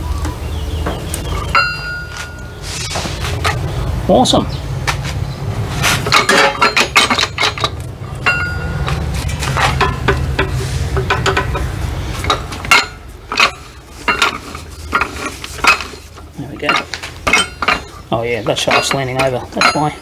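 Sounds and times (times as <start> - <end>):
metal gears clinking and knocking: 6.0 - 20.0.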